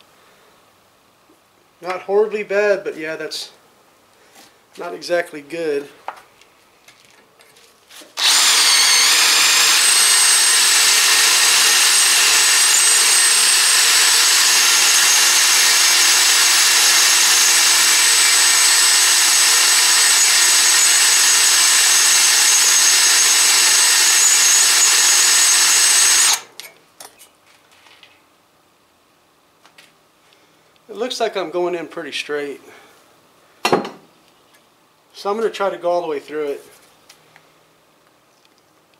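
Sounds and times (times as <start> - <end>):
power drill whining: 8.2 - 26.5.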